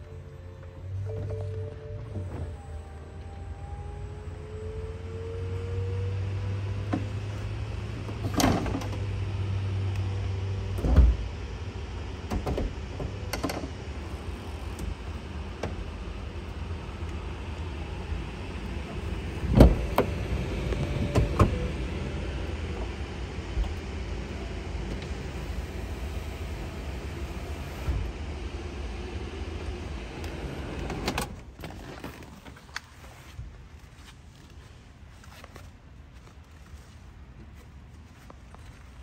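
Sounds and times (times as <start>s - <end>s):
car roof clunks and thumps: 19.4s - 21.7s.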